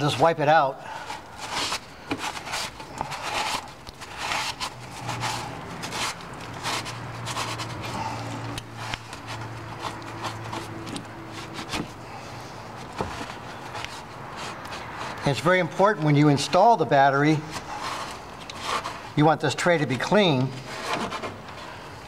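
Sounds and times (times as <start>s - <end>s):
cloth scraping metal tray: 13.1s - 21.8s.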